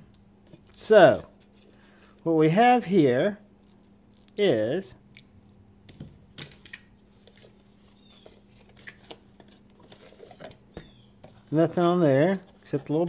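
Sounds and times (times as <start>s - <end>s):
faint steady hum: 0.0s - 13.0s
clicks and rustling of packaging: 6.4s - 13.0s.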